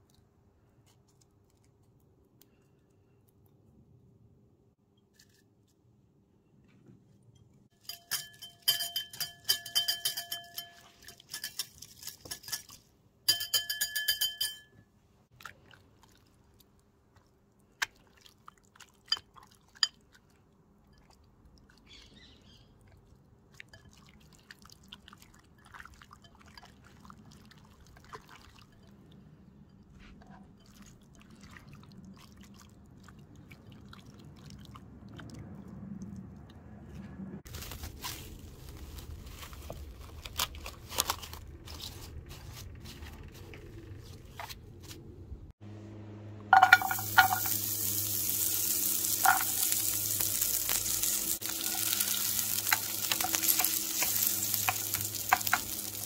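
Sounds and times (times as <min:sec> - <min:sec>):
glass dish tapping glass bowl: 0:07.9 - 0:10.8, 0:13.3 - 0:14.8, 0:46.6 - 0:47.6.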